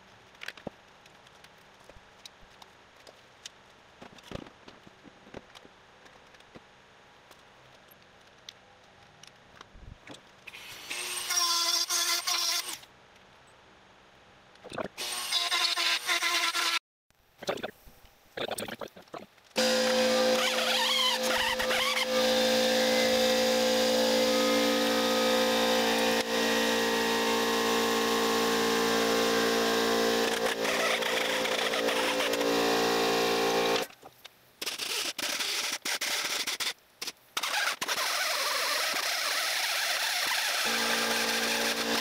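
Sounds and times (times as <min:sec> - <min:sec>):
electric power tool running: 0:19.6 - 0:33.9, 0:38.7 - 0:42.0.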